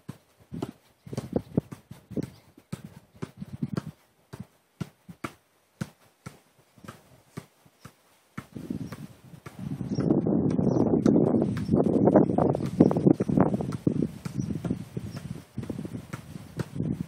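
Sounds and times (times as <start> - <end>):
dull kicks of football: 0.0 - 11.7.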